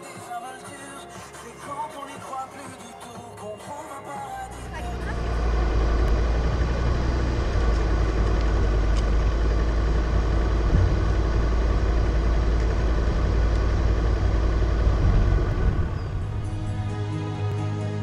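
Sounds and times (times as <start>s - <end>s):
suv engine and tyre rumble: 4.2s - 17.0s.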